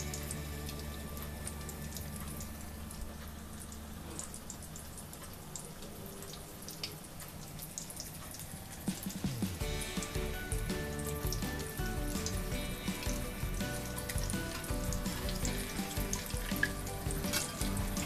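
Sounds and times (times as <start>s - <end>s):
oil crackling and popping: 0.0s - 18.0s
omelette sizzling in oil: 0.0s - 18.0s.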